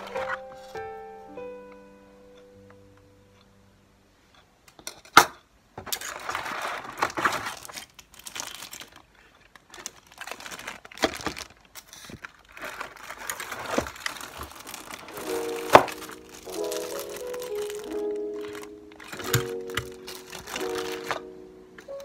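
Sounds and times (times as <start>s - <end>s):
plastic bags crinkling: 5.8s - 22.0s
small items knocking on desk: 19.0s - 21.2s.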